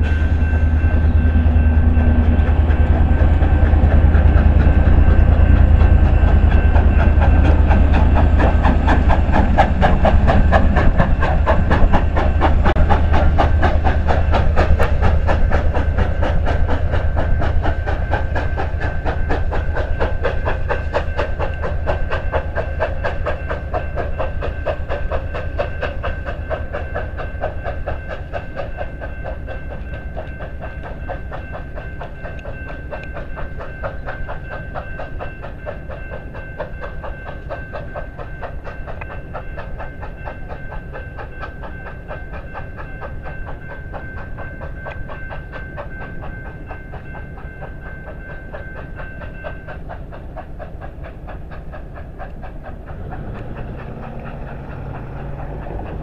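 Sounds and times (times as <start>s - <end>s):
train wheels clicking on rails: 0.0s - 56.0s.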